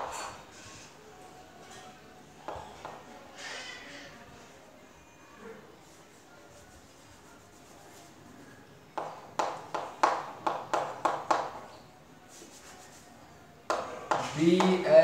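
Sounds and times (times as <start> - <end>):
chalk tapping on blackboard: 9.0 - 11.7, 12.3 - 13.0, 13.7 - 14.9.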